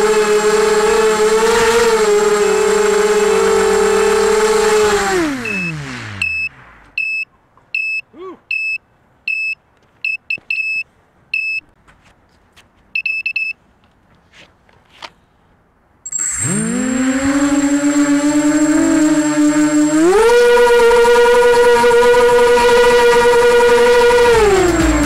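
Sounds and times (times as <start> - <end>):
drone motors whining: 0.0 - 7.0, 16.1 - 25.0
short high-pitched alarm beeps: 5.4 - 7.2, 7.8 - 10.8.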